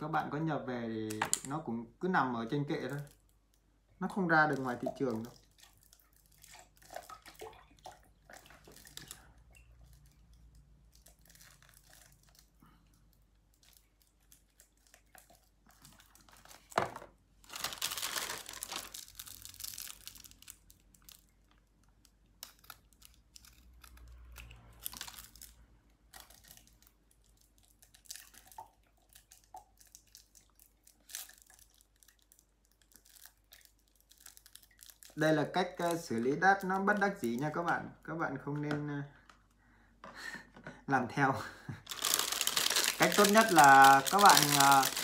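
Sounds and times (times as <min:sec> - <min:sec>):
plastic wrap crinkling: 0:02.4 - 0:37.8, 0:41.7 - 0:45.0.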